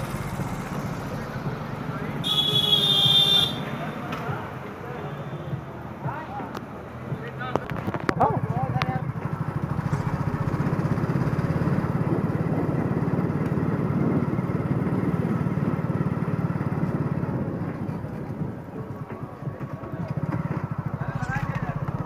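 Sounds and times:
small motorcycle engine running: 0:08.4 - 0:22.0.

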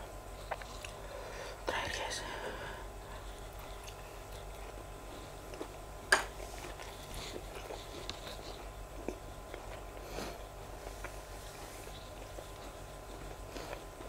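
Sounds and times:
low steady hum: 0:00.0 - 0:14.0
chewing mouth smacks: 0:00.4 - 0:01.0.

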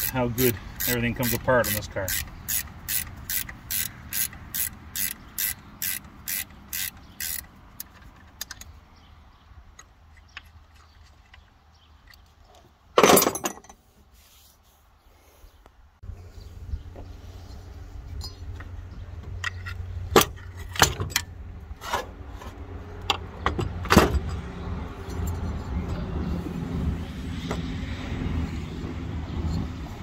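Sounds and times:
ratchet wrench clicking: 0:00.0 - 0:08.6.

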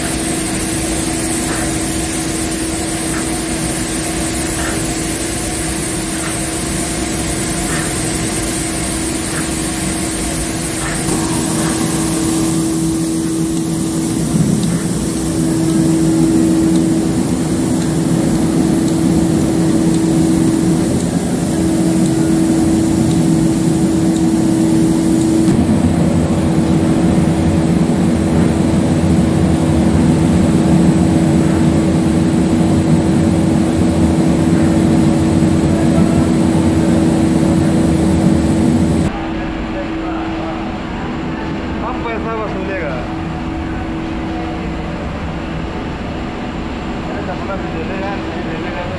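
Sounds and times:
machine hum with steady tone: 0:00.0 - 0:48.9.

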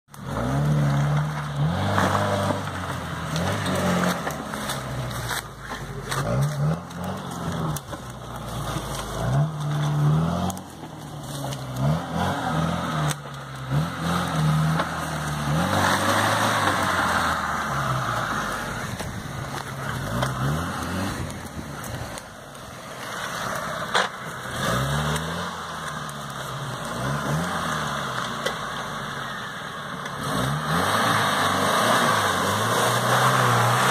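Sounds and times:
engine revving: 0:00.1 - 0:33.9.

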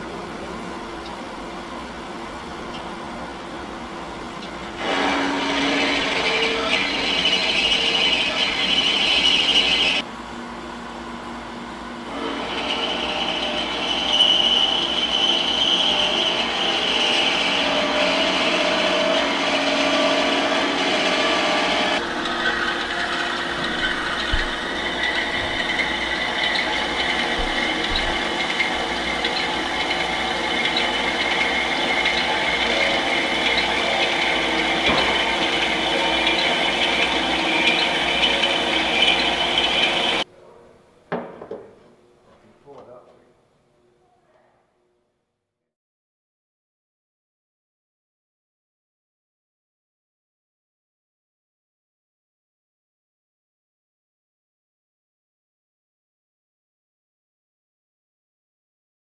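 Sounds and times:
band saw cutting metal: 0:04.8 - 0:10.0, 0:12.1 - 0:40.2.

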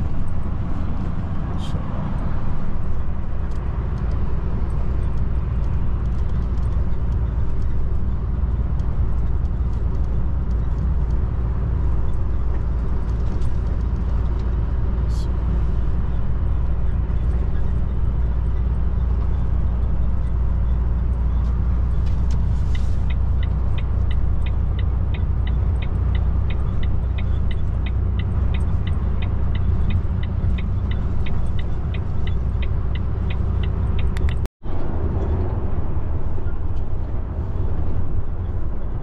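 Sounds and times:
road noise: 0:00.0 - 0:39.0
truck engine drone: 0:00.0 - 0:39.0
light ticking: 0:22.2 - 0:34.5.

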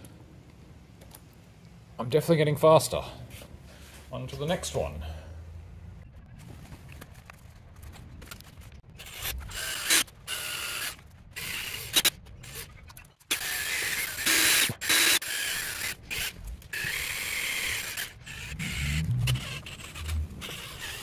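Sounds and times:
cordless drill grinding metal: 0:09.0 - 0:21.0.

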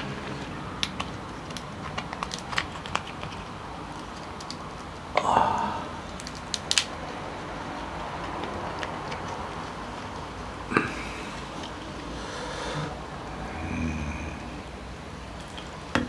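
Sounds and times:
crab shell cracking: 0:00.7 - 0:05.2, 0:06.0 - 0:07.2.

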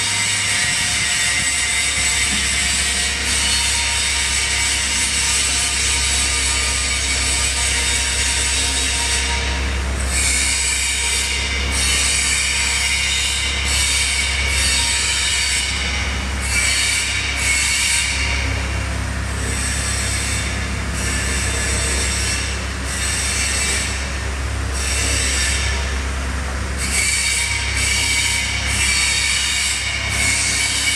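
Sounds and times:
hydraulics squealing: 0:00.0 - 0:18.5, 0:26.8 - 0:30.9
diesel engine under load: 0:00.0 - 0:30.9.

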